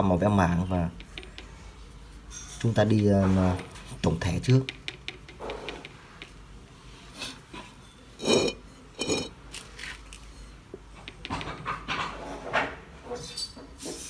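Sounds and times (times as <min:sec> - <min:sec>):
paintbrush knocking paint container: 0:00.6 - 0:01.7, 0:04.0 - 0:06.4, 0:11.0 - 0:11.7.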